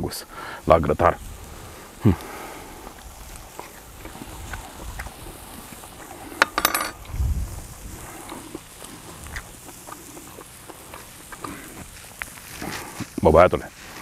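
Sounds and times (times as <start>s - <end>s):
metallic clinks: 6.4s - 7.0s.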